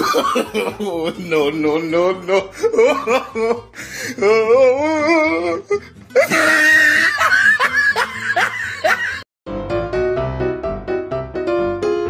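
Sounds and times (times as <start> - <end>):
person laughing hard: 0.0 - 9.3.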